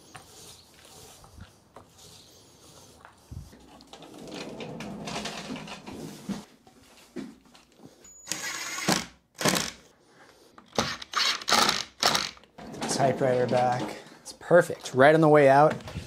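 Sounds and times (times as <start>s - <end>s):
rustling scrape: 3.2s - 6.5s
impact driver driving screws: 8.3s - 9.8s, 10.7s - 12.5s.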